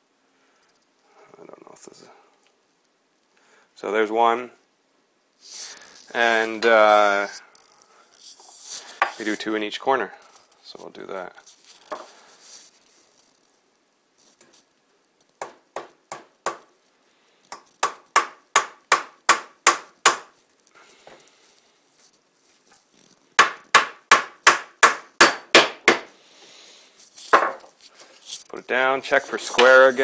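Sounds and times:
hammer striking nails into wood: 15.4 - 16.7, 17.5 - 20.3, 23.4 - 26.1.

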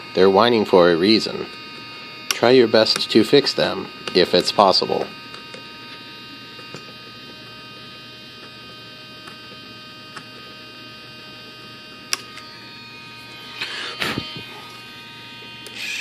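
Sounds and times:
high-pitched electrical hum: 0.0 - 16.0.

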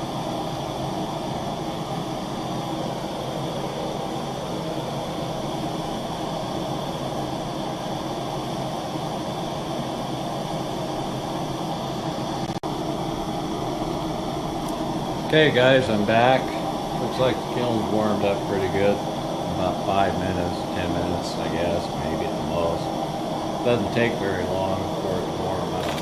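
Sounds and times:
gas torches hissing: 14.2 - 26.0.

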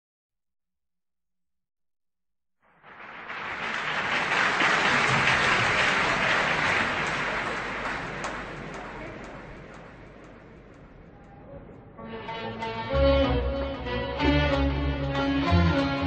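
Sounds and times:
concert audience applauding: 2.6 - 11.1.

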